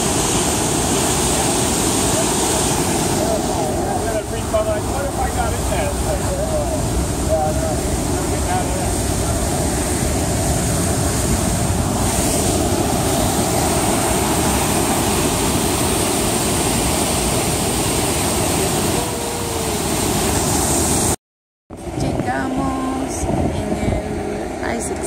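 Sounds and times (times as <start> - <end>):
river rushing through rapids: 0.0 - 21.2.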